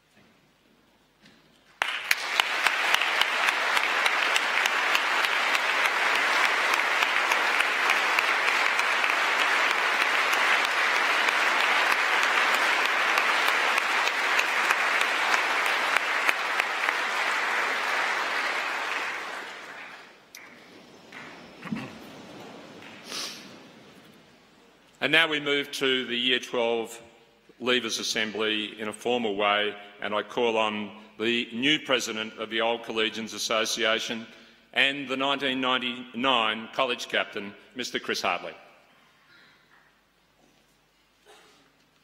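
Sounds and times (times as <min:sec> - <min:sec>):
audience applauding: 0:01.7 - 0:25.0.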